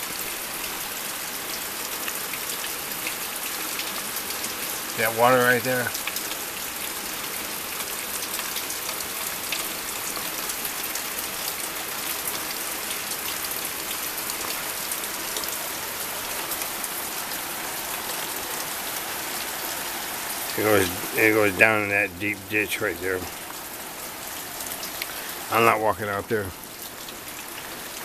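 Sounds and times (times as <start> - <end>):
heavy rain hissing: 0.0 - 8.3, 10.6 - 28.0
floodwater rushing into ditch: 0.0 - 28.0
raindrops tapping: 7.2 - 28.0.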